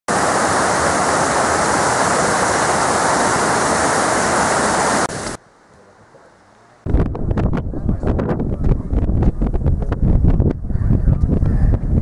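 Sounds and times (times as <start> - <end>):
stream rushing over rocks: 0.1 - 5.4.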